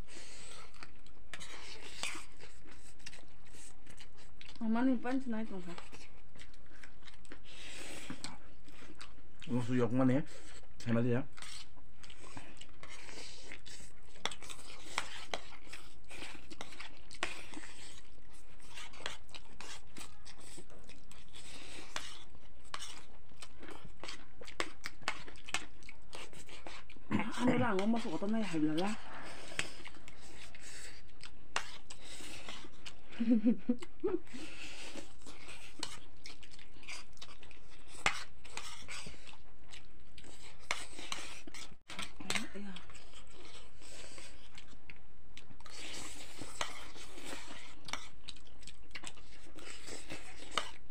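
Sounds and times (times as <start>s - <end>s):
chewing: 0.0s - 50.9s
people slurping noodles: 7.4s - 8.9s, 23.8s - 36.0s, 45.7s - 48.1s
slurping noodles: 45.7s - 48.2s.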